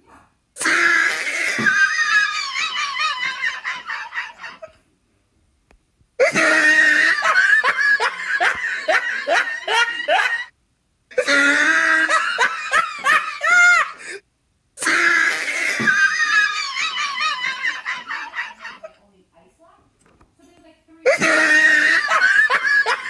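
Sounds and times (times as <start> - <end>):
person laughing hard: 0.6 - 4.8, 6.2 - 10.5, 11.2 - 14.2, 14.8 - 18.9, 21.1 - 23.0.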